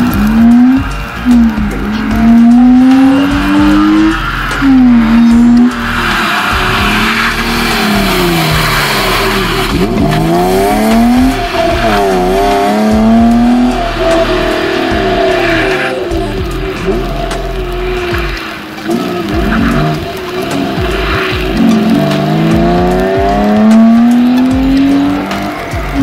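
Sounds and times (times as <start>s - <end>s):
car engine revving hard: 0.0s - 26.0s
tyres sliding on wet tarmac: 0.0s - 26.0s.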